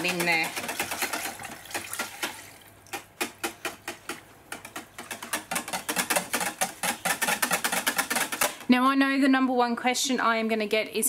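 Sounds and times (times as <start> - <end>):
whisk tapping plastic tub: 0.0 - 8.7.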